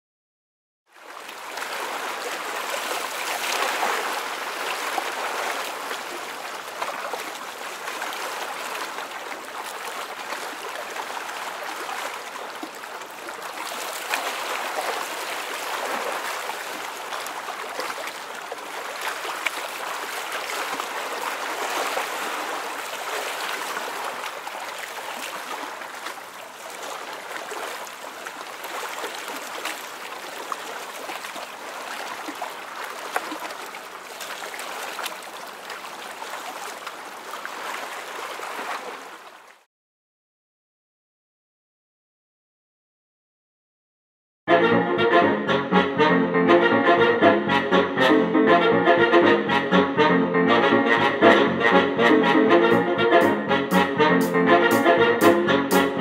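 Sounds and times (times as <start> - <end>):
running water rushing: 1.0 - 39.6.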